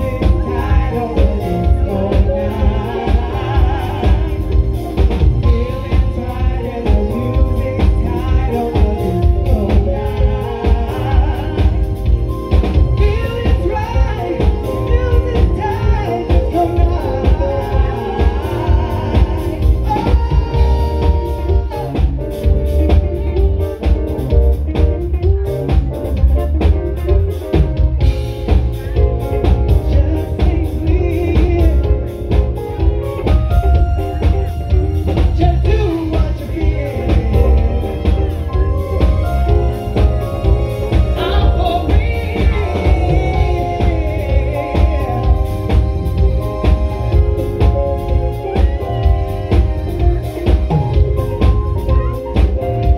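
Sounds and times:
bass and drum beat: 0:00.0 - 0:52.9
live band playing: 0:00.0 - 0:52.9
woman singing: 0:40.9 - 0:45.9.

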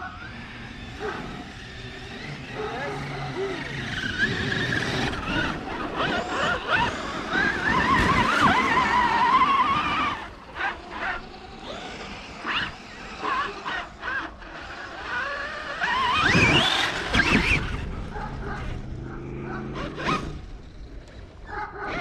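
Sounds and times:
toy truck electric motor whining: 0:00.0 - 0:22.0.

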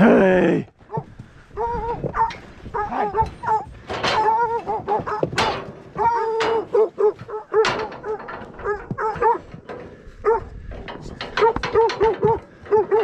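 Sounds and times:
dogs barking: 0:01.6 - 0:09.6, 0:10.2 - 0:10.6, 0:11.3 - 0:13.0.

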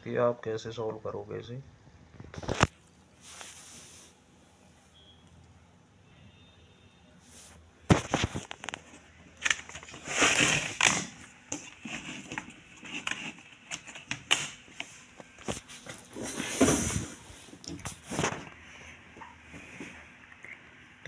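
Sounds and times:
rustling: 0:02.3 - 0:04.2, 0:07.2 - 0:14.2.

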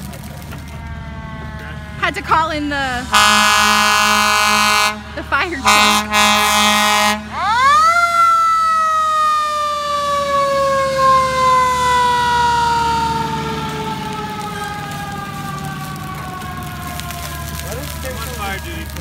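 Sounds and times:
air horn blast: 0:02.9 - 0:07.4
fire truck siren winding: 0:07.3 - 0:19.0.

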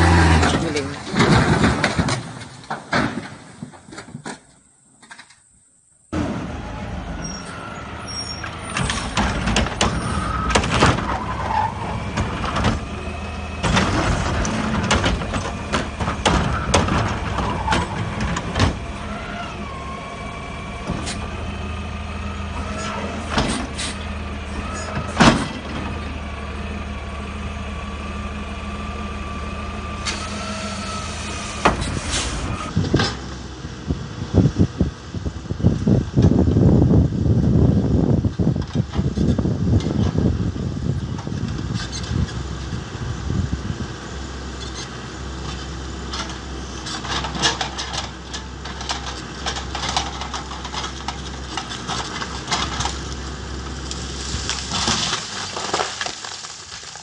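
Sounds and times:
heavy truck engine running: 0:00.0 - 0:02.1, 0:06.0 - 0:57.0
knocks and clatters: 0:00.4 - 0:05.3, 0:08.7 - 0:12.8, 0:13.6 - 0:18.9.

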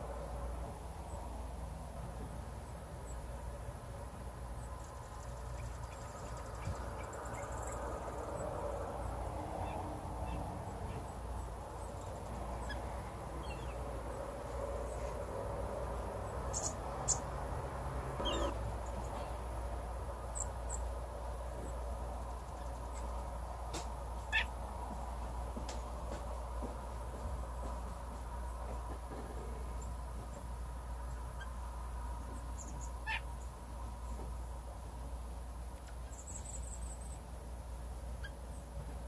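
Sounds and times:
low outdoor rumble: 0:00.0 - 0:39.0
chickadees chirping: 0:04.6 - 0:09.0, 0:09.6 - 0:15.2, 0:16.2 - 0:17.3, 0:18.2 - 0:19.4, 0:20.2 - 0:24.7, 0:31.0 - 0:34.2, 0:35.8 - 0:37.3, 0:38.1 - 0:38.7.

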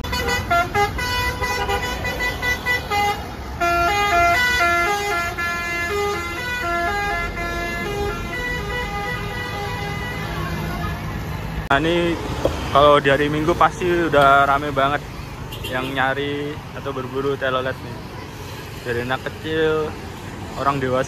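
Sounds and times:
bus horn playing melody: 0:00.0 - 0:11.0.

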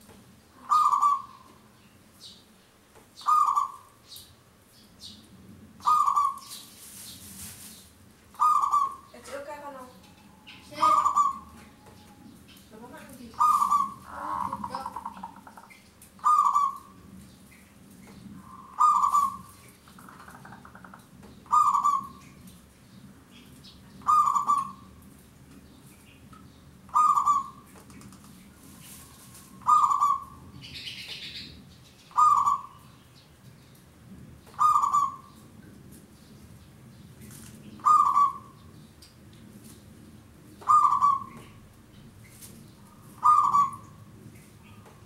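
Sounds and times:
dove cooing: 0:00.6 - 0:01.6, 0:03.2 - 0:03.9, 0:05.8 - 0:06.5, 0:08.4 - 0:17.0, 0:18.4 - 0:22.3, 0:23.9 - 0:24.9, 0:26.9 - 0:27.7, 0:29.0 - 0:31.5, 0:32.1 - 0:32.8, 0:34.5 - 0:35.4, 0:37.8 - 0:38.7, 0:40.6 - 0:41.7, 0:42.9 - 0:44.1.

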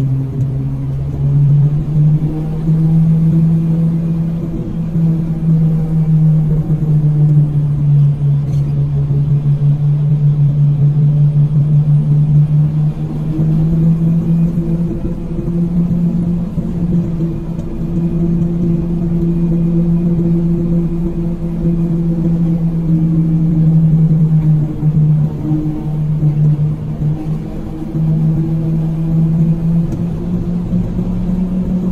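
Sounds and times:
vehicle engine cruising: 0:00.0 - 0:31.9
wind and road noise: 0:00.0 - 0:31.9.

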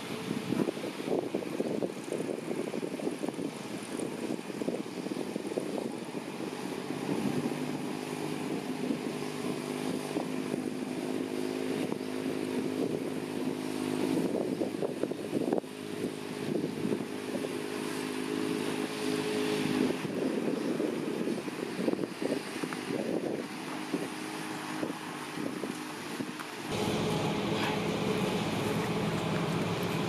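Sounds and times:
dump truck engine running: 0:26.6 - 0:30.0.

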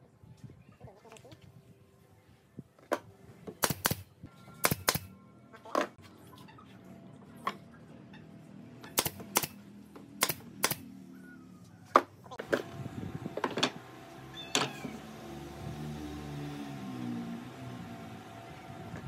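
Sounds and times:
nail gun firing: 0:03.6 - 0:05.1, 0:08.9 - 0:09.6, 0:10.2 - 0:10.8.

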